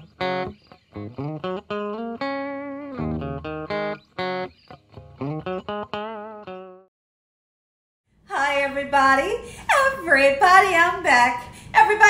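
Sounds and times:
plucked guitar notes: 0.0s - 6.9s.

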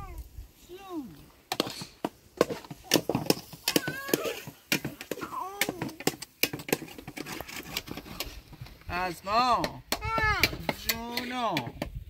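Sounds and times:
sharp knocks and clacks: 1.5s - 8.7s.

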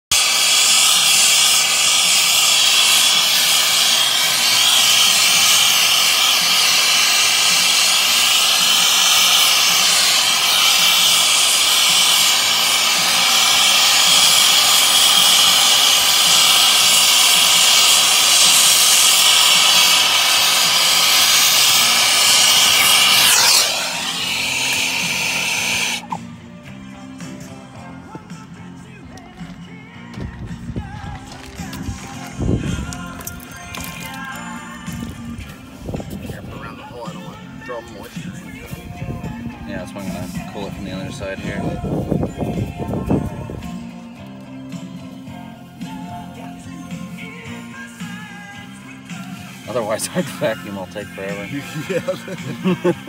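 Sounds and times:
refrigerant gas hissing: 0.0s - 26.3s, 29.2s - 53.0s
whistle sweeping down: 21.3s - 26.2s.

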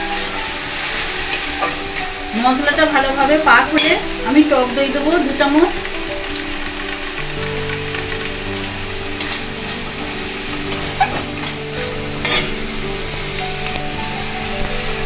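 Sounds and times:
metal spatula scraping a pan: 0.0s - 2.6s, 9.2s - 12.6s
masala sizzling in a pan: 0.0s - 15.0s.

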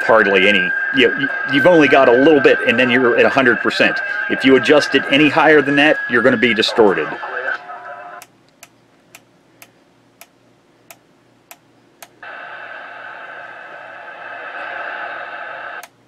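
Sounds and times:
radio received signal: 0.0s - 8.3s, 12.2s - 15.9s.

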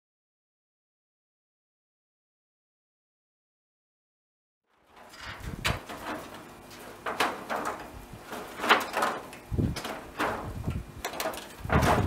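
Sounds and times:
metal roofing clanking and scraping: 4.8s - 12.0s.

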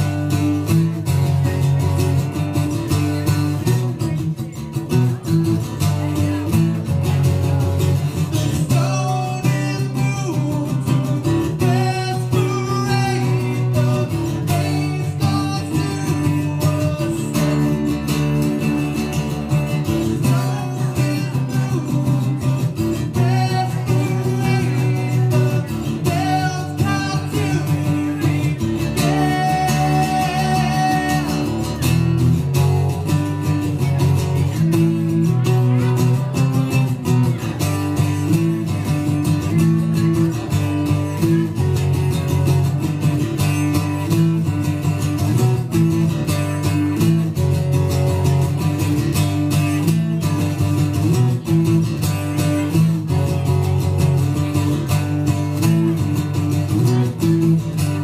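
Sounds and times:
acoustic guitar strummed: 0.0s - 58.0s
person singing: 7.9s - 41.4s.

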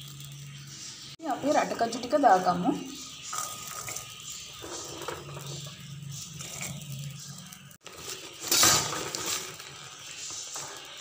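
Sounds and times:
peanuts rattling into metal wok: 3.2s - 11.0s.

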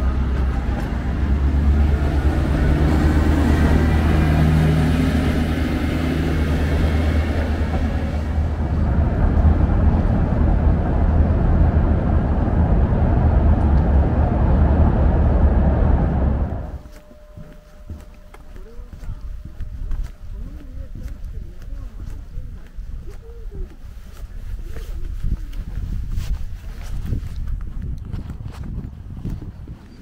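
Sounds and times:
hum: 0.0s - 22.0s
train rumbling past: 0.0s - 22.7s.

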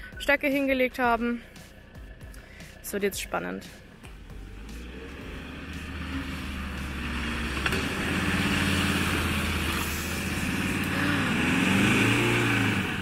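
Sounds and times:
pickup truck engine revving: 3.6s - 13.0s.

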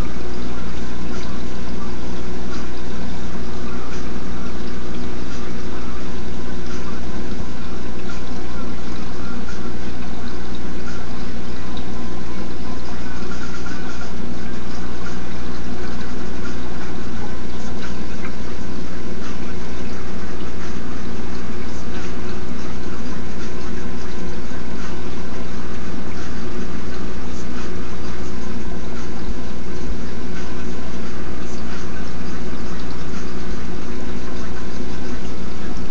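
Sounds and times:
low pump hum: 0.0s - 35.9s
rushing water: 0.0s - 35.9s.

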